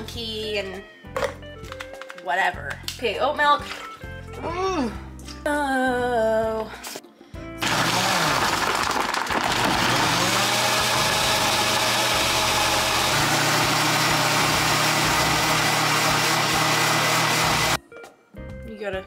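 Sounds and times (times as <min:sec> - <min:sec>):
blender whirring with ice: 0:07.6 - 0:17.8.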